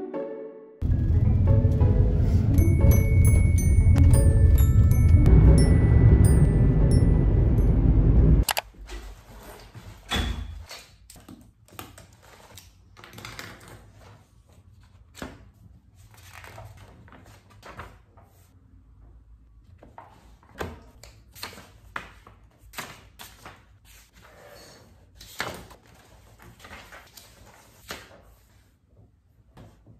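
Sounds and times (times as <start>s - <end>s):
pages turning: 25.2s - 28.6s
paper rustling: 25.2s - 28.8s.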